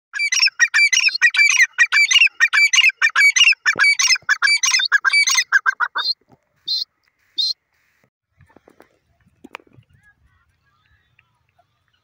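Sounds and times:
bird calling shrill notes: 0.2 - 8.0.

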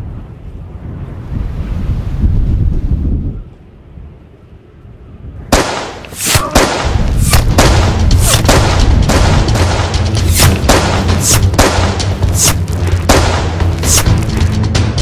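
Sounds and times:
rifle gunshot crack: 5.5 - 14.1
heavy percussive film score: 5.6 - 15.0
repeated sharp hits: 5.6 - 15.0
low rumble: 6.4 - 15.0.

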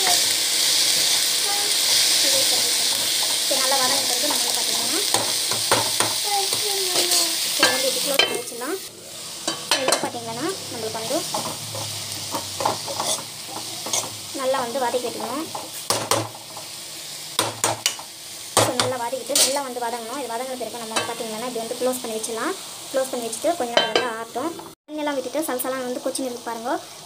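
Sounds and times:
oil sizzling: 0.0 - 27.0
metal spoon scraping frying pan: 10.8 - 16.7, 18.6 - 19.6.

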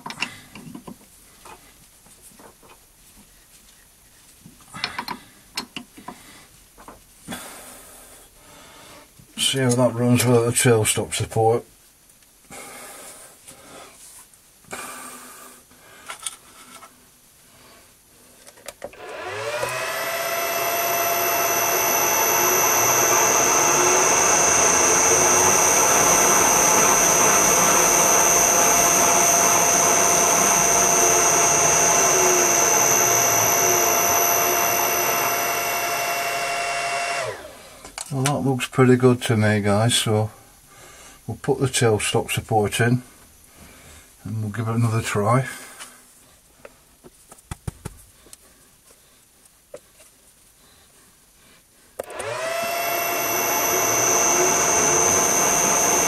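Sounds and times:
metal lathe motor whining: 19.0 - 37.5, 52.0 - 56.0.

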